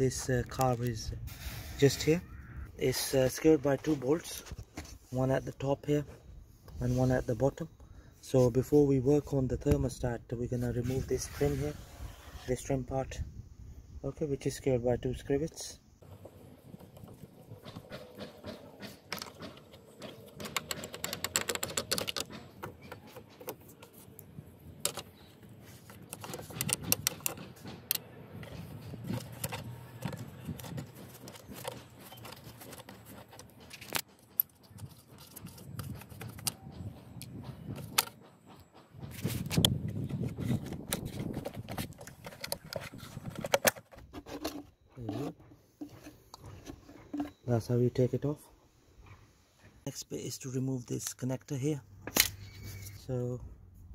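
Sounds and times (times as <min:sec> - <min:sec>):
clicks and knocks of plastic: 0:16.0 - 0:24.0, 0:25.8 - 0:36.8, 0:40.4 - 0:47.4.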